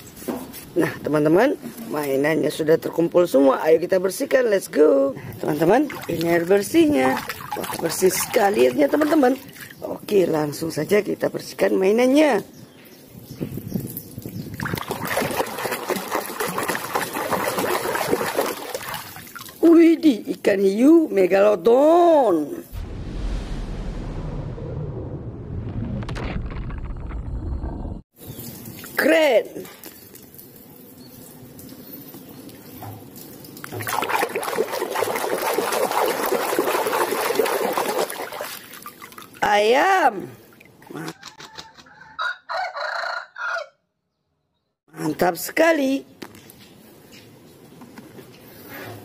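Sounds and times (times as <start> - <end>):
water sloshing in plastic basin: 5.4 - 9.9, 14.5 - 19.8, 32.9 - 39.6.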